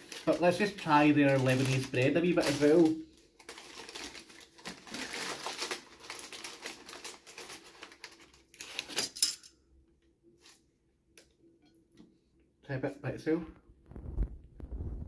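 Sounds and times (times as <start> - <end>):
paper bag crinkling: 0.0 - 9.2.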